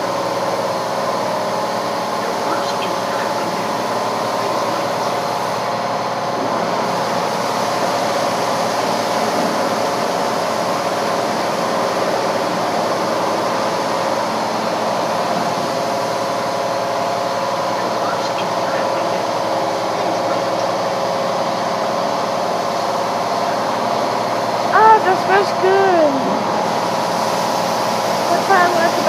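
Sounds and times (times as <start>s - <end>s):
water spray hissing on car: 0.0s - 25.2s, 26.4s - 29.0s
car wash machine hum: 0.0s - 29.0s.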